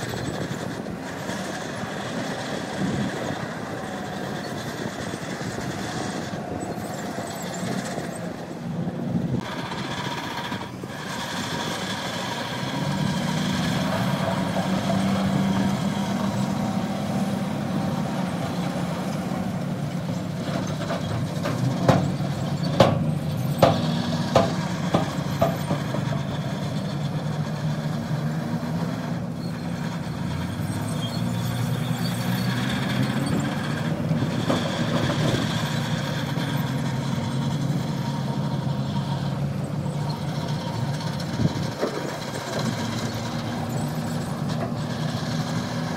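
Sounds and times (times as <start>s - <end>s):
heavy machinery diesel engine: 0.0s - 45.9s.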